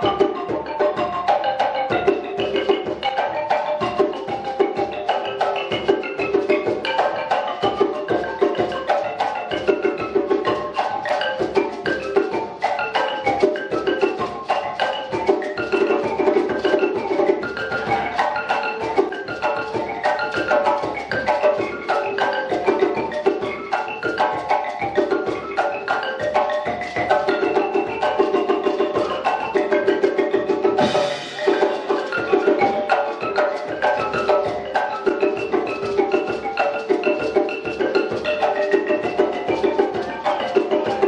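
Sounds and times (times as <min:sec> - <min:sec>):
jazz band percussive groove: 0:00.0 - 0:41.0
quick pitched notes: 0:30.7 - 0:35.2.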